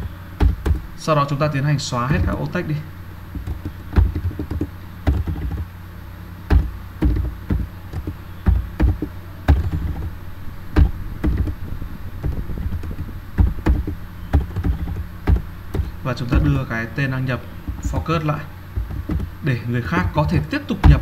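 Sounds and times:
keyboard typing: 0.0 - 1.0, 3.3 - 5.7, 6.5 - 16.8, 18.8 - 19.4
low steady hum: 0.0 - 21.0.

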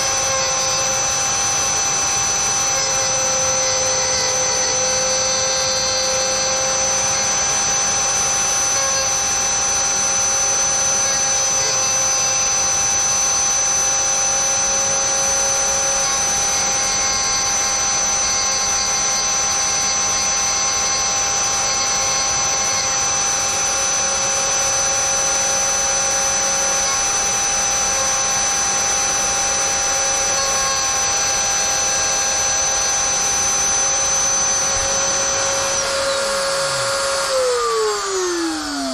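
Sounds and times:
rotary tool high whine: 0.0 - 38.9.

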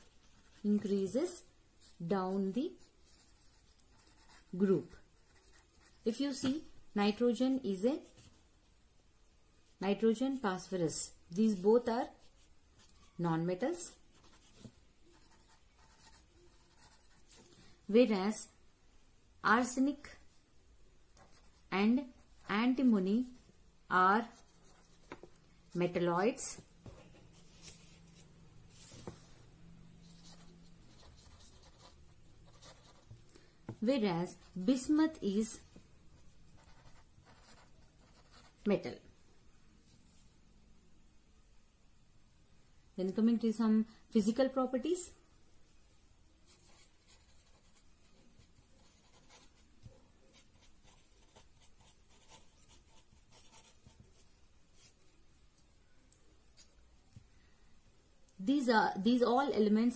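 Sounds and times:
pen scratching on paper: 0.0 - 1.2, 1.8 - 6.5, 14.1 - 17.5, 30.0 - 33.1, 36.2 - 38.6, 46.5 - 47.9, 48.5 - 49.6, 50.3 - 54.9.

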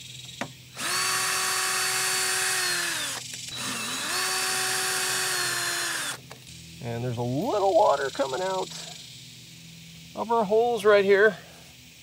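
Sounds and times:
power driver motor whining: 0.8 - 6.3.

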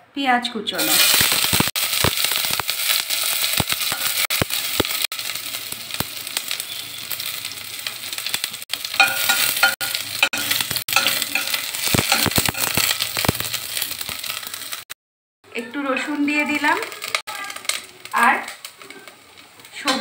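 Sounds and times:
onion sizzling in oil: 0.7 - 15.0, 15.6 - 20.0
spatula scraping a pot: 8.9 - 13.5.

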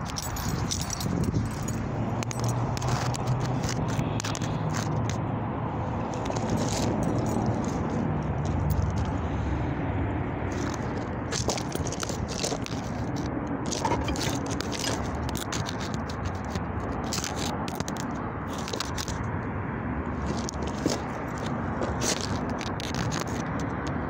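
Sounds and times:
phone handling noise: 10.5 - 16.6.

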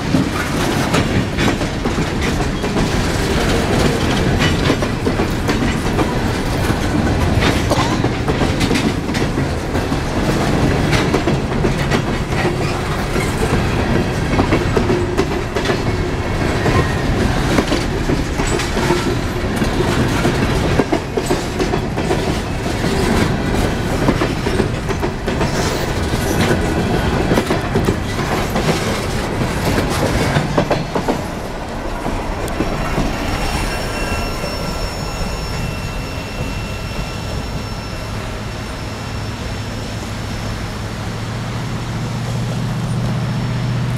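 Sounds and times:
wheels clacking over rail joints: 0.0 - 37.7
freight train rail rumble: 0.0 - 43.9
high wheel squeal: 16.5 - 17.6, 32.6 - 41.4.

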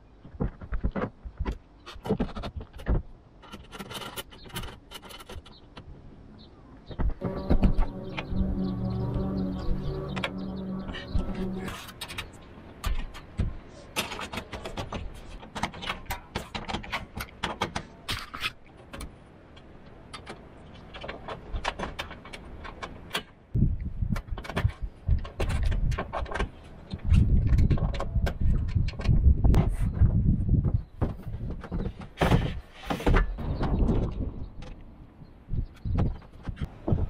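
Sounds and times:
low rumbling and knocking: 7.0 - 11.8.

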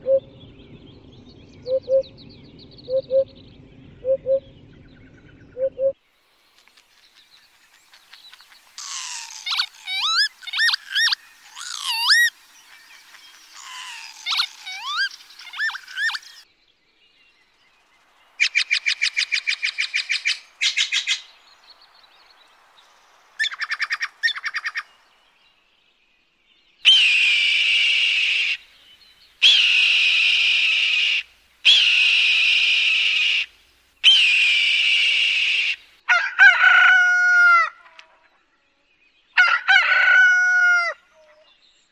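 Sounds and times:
bird chattering calls: 7.9 - 16.4
bird of prey screaming: 8.8 - 12.3, 13.6 - 16.3, 26.9 - 28.6, 29.4 - 35.8
rooster crowing: 36.1 - 37.8, 39.4 - 41.1.

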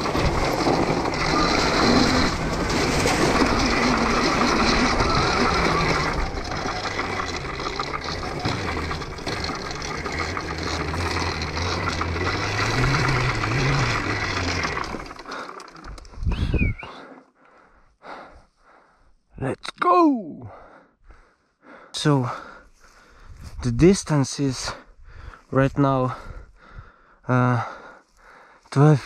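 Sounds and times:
electric motor hum: 0.0 - 16.3
tyres rolling on dirt: 0.0 - 17.0.

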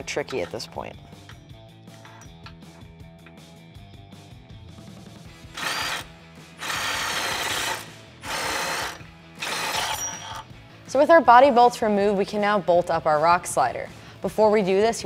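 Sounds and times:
quiet background music: 0.0 - 15.0.

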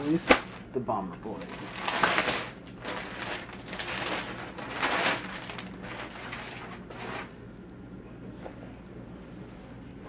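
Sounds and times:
plastic bag rustling: 0.0 - 7.4.

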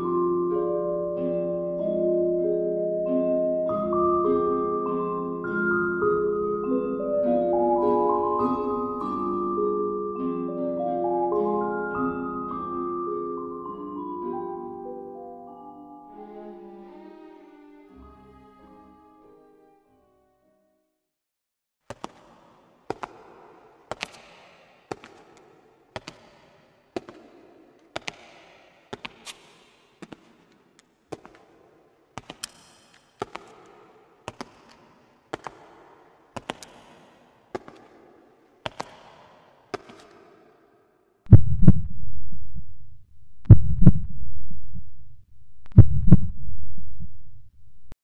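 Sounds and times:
low heartbeat-like thuds: 41.3 - 47.6.

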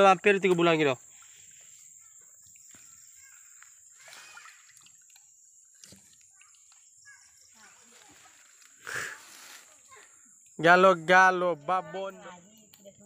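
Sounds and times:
water sloshing in a basin: 0.8 - 8.7.

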